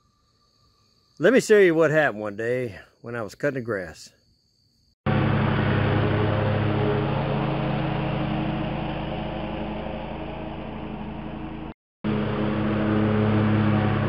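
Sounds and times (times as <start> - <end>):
riding mower engine running: 5.1 - 14.0.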